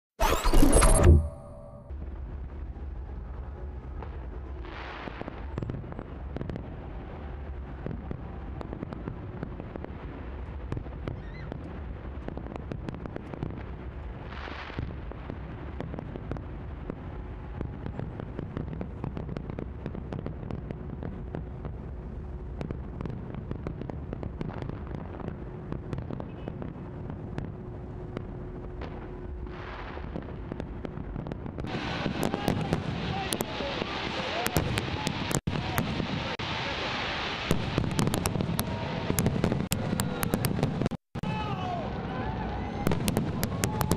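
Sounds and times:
low rumble: 0:00.6 - 0:04.6
fireworks bangs and crackles: 0:01.2 - 0:43.9
fireworks hiss: 0:31.7 - 0:40.9.

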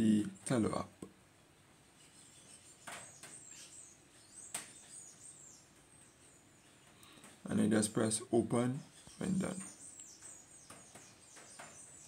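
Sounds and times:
faint high bird-like chirps: 0:02.0 - 0:07.2, 0:08.8 - 0:12.0.

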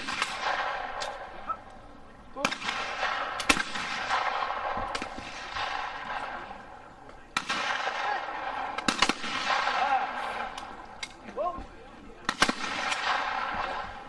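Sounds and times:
shotgun shots with echo: 0:00.0 - 0:01.3, 0:02.4 - 0:06.6, 0:07.3 - 0:10.6, 0:12.2 - 0:14.0.

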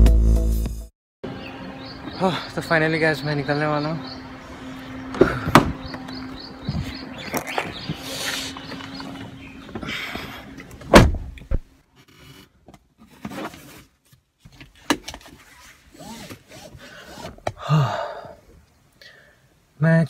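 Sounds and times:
car door shutting: 0:05.2 - 0:05.9, 0:10.6 - 0:11.7.

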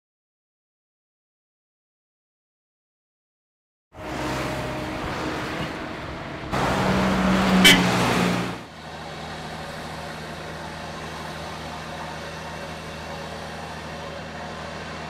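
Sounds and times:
diesel machinery engine running: 0:04.0 - 0:15.0.

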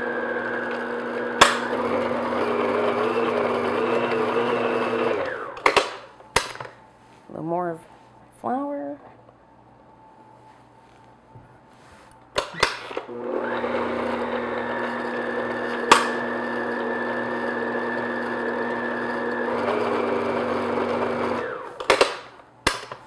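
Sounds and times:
stand mixer motor whining: 0:00.0 - 0:06.0, 0:12.4 - 0:22.2.

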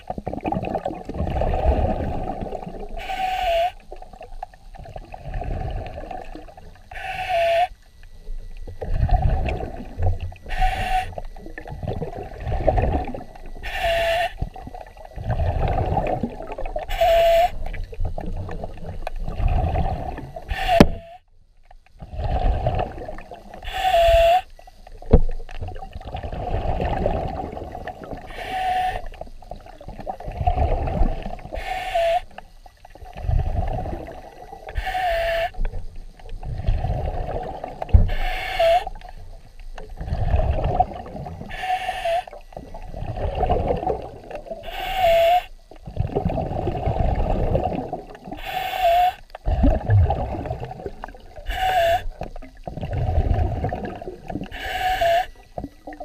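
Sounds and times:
exhaled bubbles rumbling: 0:00.0 - 0:07.0, 0:07.9 - 0:21.1, 0:21.9 - 0:31.8, 0:32.4 - 0:41.6, 0:42.3 - 0:48.5, 0:49.3 - 0:56.0
diver inhaling through regulator: 0:06.9 - 0:07.8, 0:10.4 - 0:11.3, 0:13.6 - 0:14.5, 0:16.8 - 0:17.6, 0:19.5 - 0:21.2, 0:22.0 - 0:24.5, 0:26.3 - 0:29.2, 0:30.3 - 0:32.4, 0:33.2 - 0:35.7, 0:36.5 - 0:39.0, 0:41.4 - 0:42.5, 0:44.0 - 0:45.6, 0:48.2 - 0:50.4, 0:51.4 - 0:55.6.

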